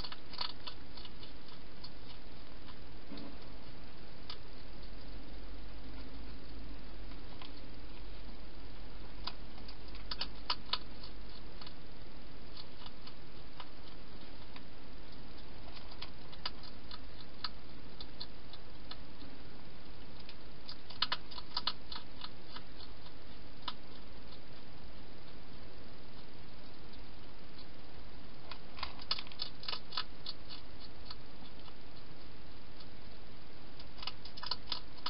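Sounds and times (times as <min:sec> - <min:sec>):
hedgehog crunching dry food: 0:00.0 - 0:35.0
steady hiss: 0:00.0 - 0:35.0.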